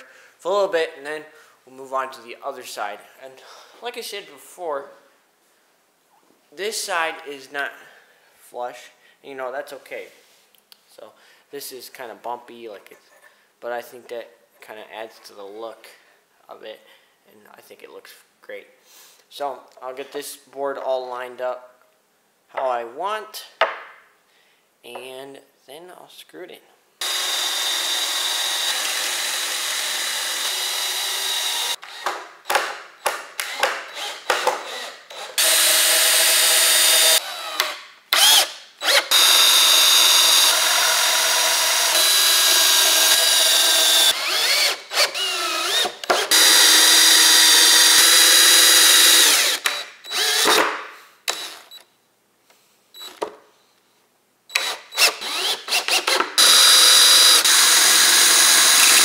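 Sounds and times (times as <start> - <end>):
cordless drill boring wood: 27.0 - 32.2, 33.4 - 50.7, 51.3 - 51.8, 54.5 - 59.0.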